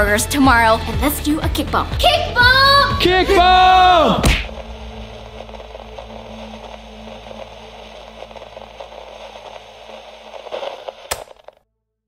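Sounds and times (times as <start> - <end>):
crackling radio static: 3.2 - 11.6
sharp click: 11.1 - 11.6.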